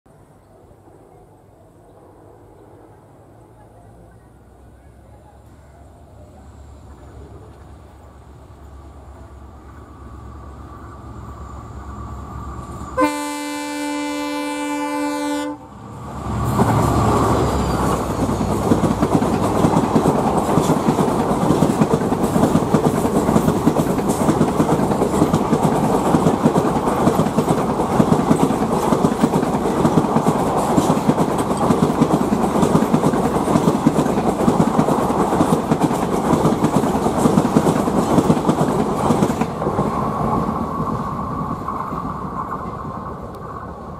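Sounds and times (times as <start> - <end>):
locomotive horn: 12.9 - 15.8
train wheels clattering over rail joints: 16.5 - 40.6.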